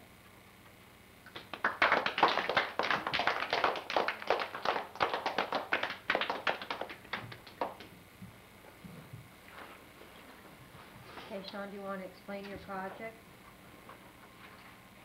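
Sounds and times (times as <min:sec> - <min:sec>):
people clapping: 0:01.2 - 0:08.0.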